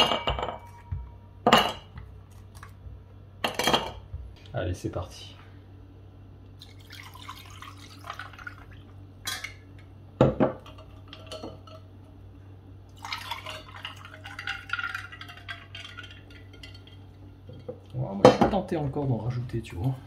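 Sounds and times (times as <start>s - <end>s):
drink poured over ice cubes: 13.0s - 16.3s.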